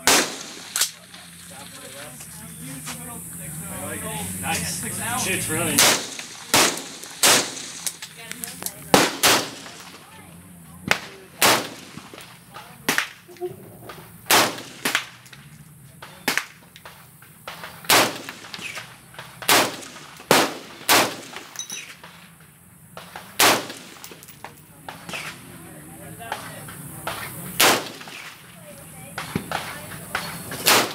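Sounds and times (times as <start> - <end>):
rifle shots: 0.0 - 1.8, 5.6 - 10.1, 10.8 - 13.3, 14.2 - 15.4, 16.0 - 22.0, 23.0 - 24.3, 27.0 - 28.5, 29.2 - 30.9.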